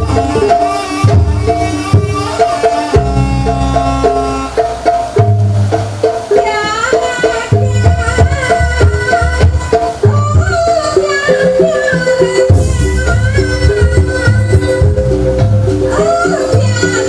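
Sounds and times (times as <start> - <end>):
low booming drum: 0.0 - 6.3, 12.5 - 16.9
steady drum beats: 0.0 - 17.0
struck pitched notes melody: 0.0 - 17.0.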